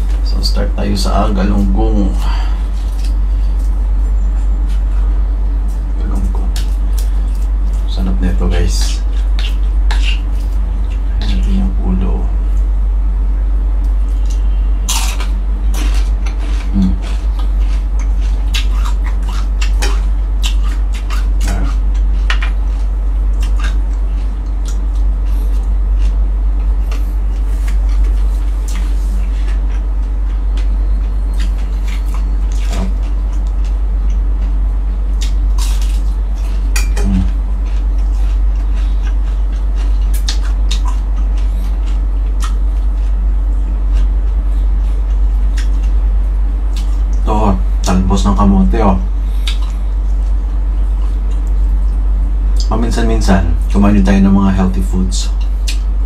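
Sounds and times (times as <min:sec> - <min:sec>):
steady low hum: 0:00.0 - 0:56.0
chewing crunches and smacks: 0:01.4 - 0:11.7, 0:13.8 - 0:48.5, 0:49.2 - 0:53.9, 0:55.2 - 0:56.0.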